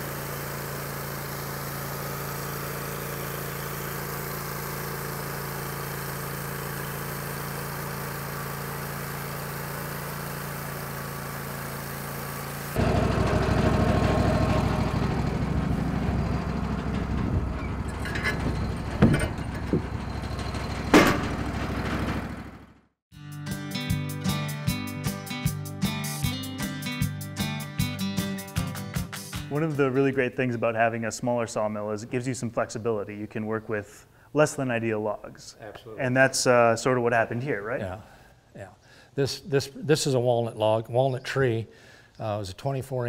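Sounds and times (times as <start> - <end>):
bandsaw cutting log: 0.0 - 22.6
engine idling: 0.0 - 22.8.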